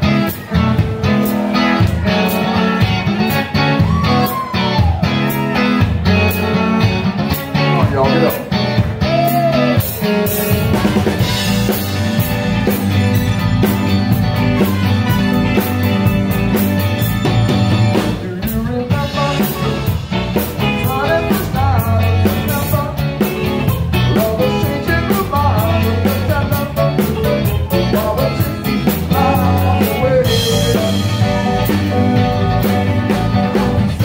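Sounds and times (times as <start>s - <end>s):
loud rock music: 0.0s - 34.0s
person singing: 17.9s - 34.0s.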